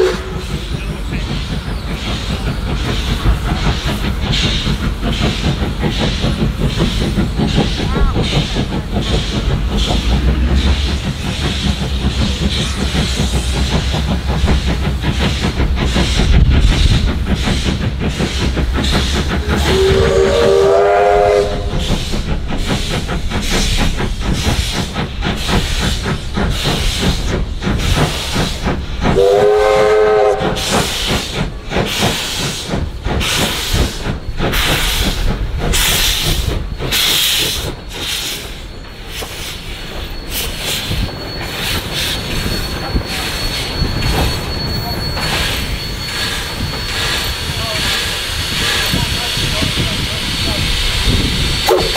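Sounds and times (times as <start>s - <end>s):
steam whistle blowing: 0.0s - 0.4s, 19.4s - 21.8s, 29.2s - 30.9s, 51.6s - 51.9s
hiss of steam: 0.0s - 51.9s
steam locomotive exhaust beating: 0.0s - 51.9s.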